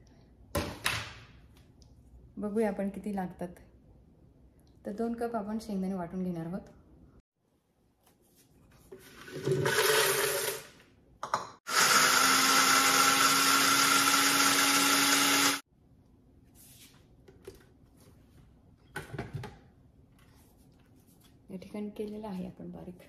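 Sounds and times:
blender grinding peanuts: 9.2 - 10.8, 11.7 - 15.6.

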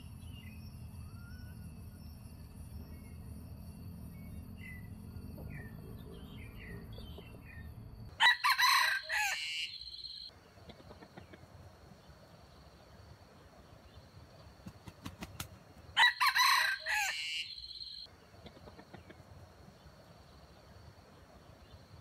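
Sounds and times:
faint small-bird chirps: 0.0 - 3.4
rooster crowing: 8.1 - 10.2, 16.0 - 18.0.

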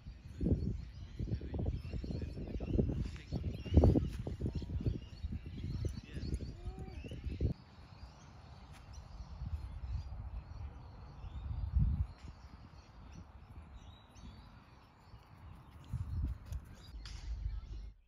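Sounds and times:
faint bird chirps: 0.0 - 18.0
low rumbling on microphone: 9.2 - 14.6.

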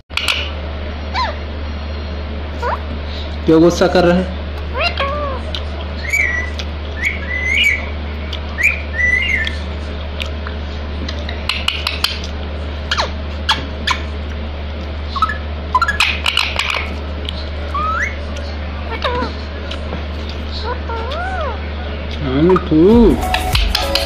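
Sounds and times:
steady low hum: 0.1 - 24.0
parakeet whistled chirps: 6.0 - 8.0, 8.6 - 9.6, 15.1 - 16.2, 17.7 - 18.2.

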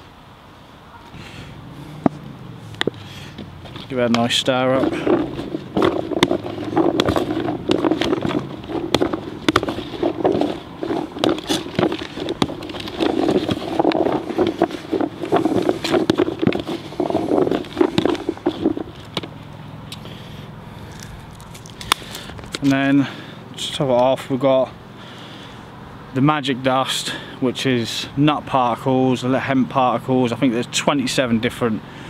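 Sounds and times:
baits rattling in a bucket: 3.7 - 19.3.

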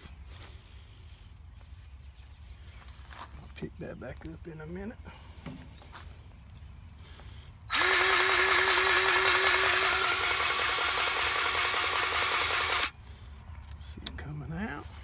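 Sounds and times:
grease gun motor whine: 7.7 - 13.0.

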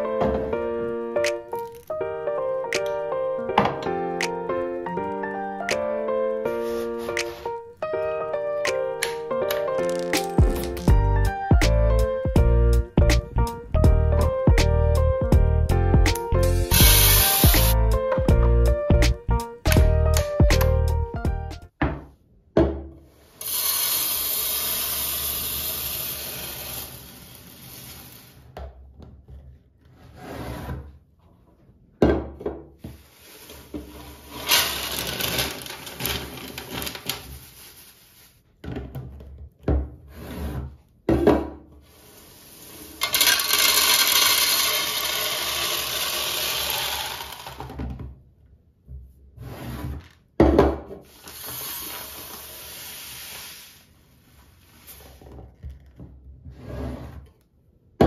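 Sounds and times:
beans and grain pouring into canister: 23.4 - 28.3, 34.2 - 38.3, 42.6 - 47.7, 51.2 - 53.8.

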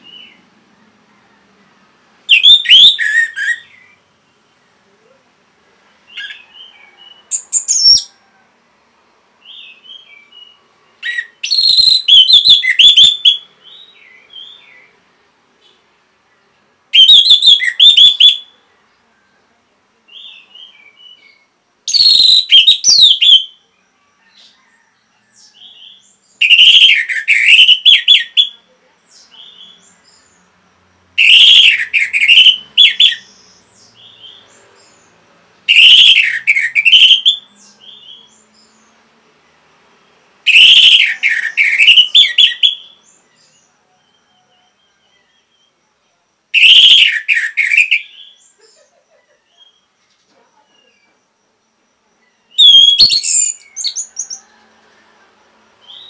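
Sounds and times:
thrush whistled song phrases: 2.3 - 3.7, 17.0 - 18.6, 26.4 - 28.6, 31.2 - 33.3, 35.7 - 38.3, 40.5 - 43.0, 46.6 - 48.2, 52.5 - 53.9.

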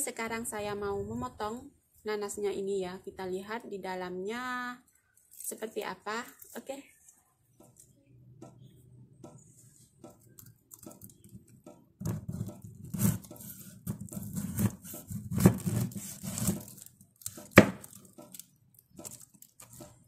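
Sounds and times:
knife cutting pineapple rind: 12.1 - 20.0.

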